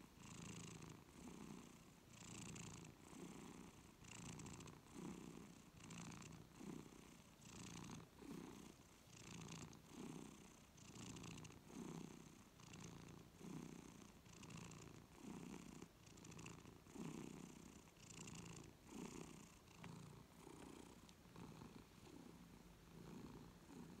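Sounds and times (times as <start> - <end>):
cat purring softly: 0.0 - 24.0.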